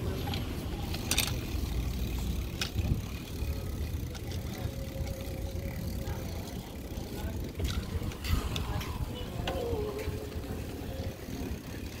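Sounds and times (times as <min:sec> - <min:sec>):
tyres rolling on pavement: 0:00.0 - 0:12.0
wind buffeting microphone: 0:02.5 - 0:03.3, 0:07.2 - 0:11.8.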